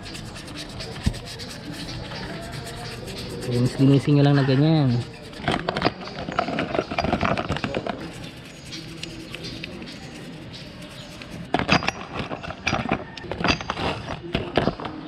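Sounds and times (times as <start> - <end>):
wet scrubbing in a bucket: 0.0 - 5.7.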